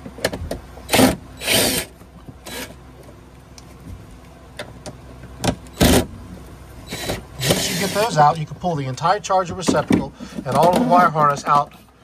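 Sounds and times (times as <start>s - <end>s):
power driver spinning screws: 0.9s - 1.9s, 6.9s - 8.1s.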